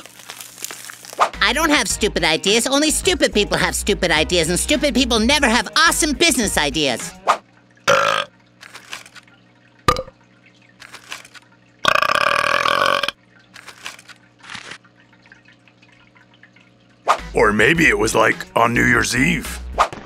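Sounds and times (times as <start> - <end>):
long loud burp: 7.9 - 8.3, 11.8 - 13.2.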